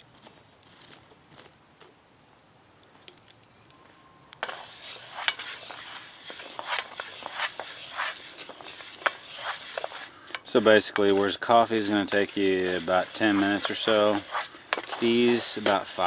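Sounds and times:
grains rustling in a hot pan: 4.4 - 16.0.

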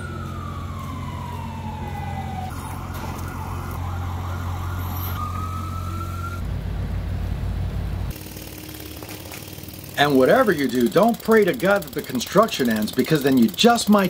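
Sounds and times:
emergency vehicle siren: 0.0 - 6.9
low engine drone: 0.0 - 14.0.

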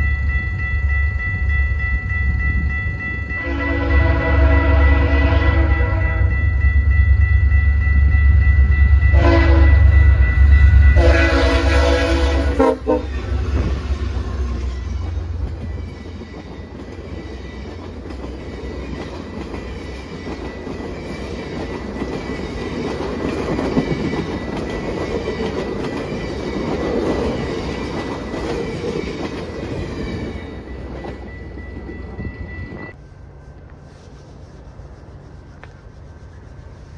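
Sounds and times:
train horn blasts: 3.3 - 6.4, 9.0 - 14.3
train wheels clattering on rails: 13.3 - 32.9.

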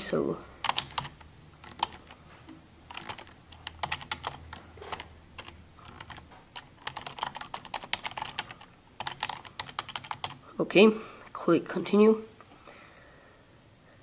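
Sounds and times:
computer keyboard typing: 0.6 - 10.5.

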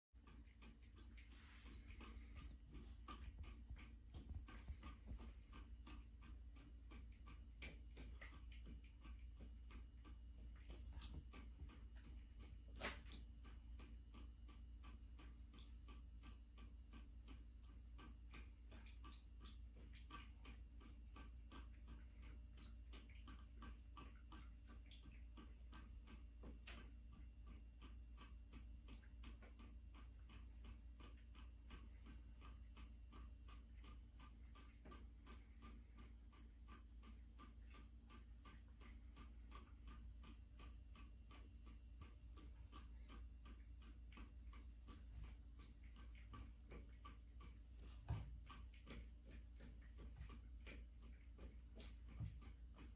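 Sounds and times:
running faucet: 0.2 - 14.3
cat lapping water: 0.2 - 52.9.

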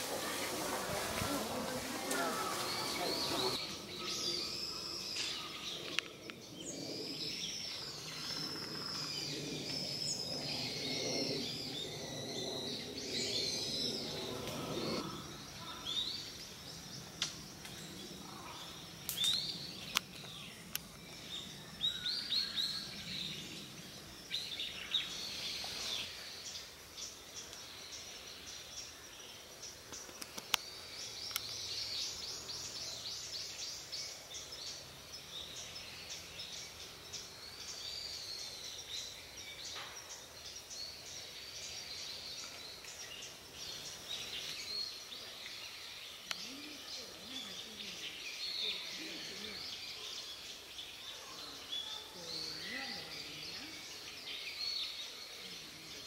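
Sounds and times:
faint human voices murmuring: 0.0 - 4.6
small birds chirping: 0.0 - 56.0
steady outdoor hiss: 0.0 - 56.0.

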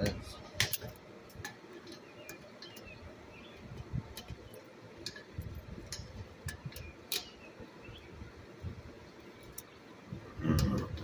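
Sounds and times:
tools and metal parts clicking: 0.6 - 3.0, 3.6 - 7.4.

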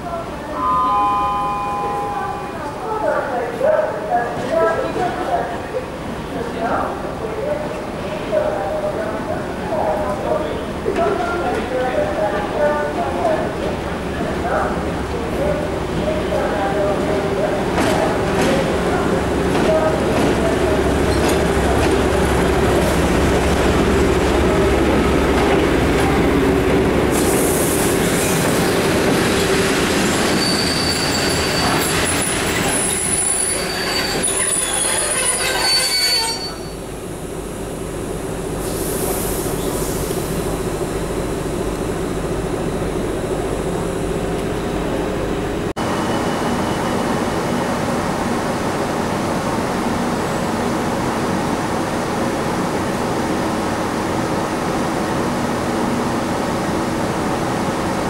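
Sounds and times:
train rumble: 1.4 - 58.0
diesel locomotive running: 8.4 - 58.0
train wheels squealing: 30.0 - 36.8, 45.9 - 47.7.

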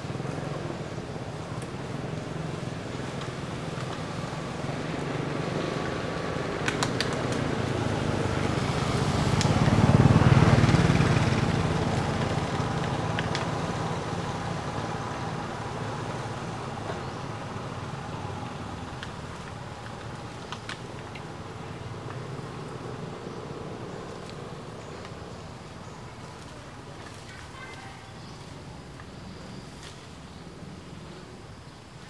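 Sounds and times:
vehicle engine passing: 0.0 - 19.8.

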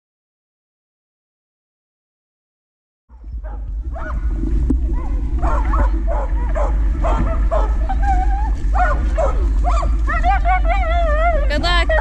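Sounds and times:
dog yipping and barking: 3.1 - 4.2, 5.0 - 12.0
dog whining: 5.0 - 12.0.

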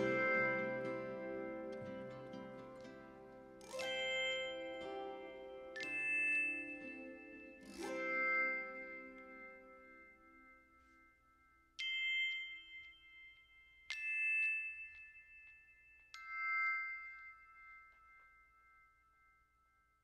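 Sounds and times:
plucked string tune: 0.0 - 10.1
struck chime notes: 0.0 - 10.9.

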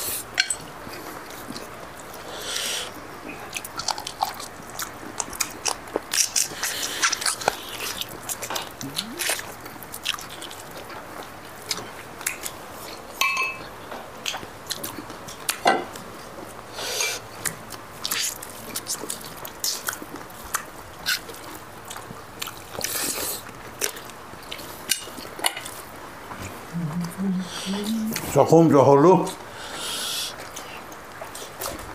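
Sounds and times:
people chewing: 0.0 - 28.4, 29.2 - 31.9.

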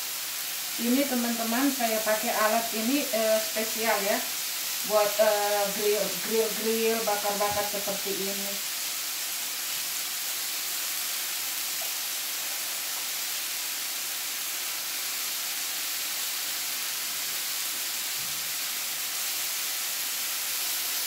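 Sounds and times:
meat sizzling on grill: 0.0 - 21.0.

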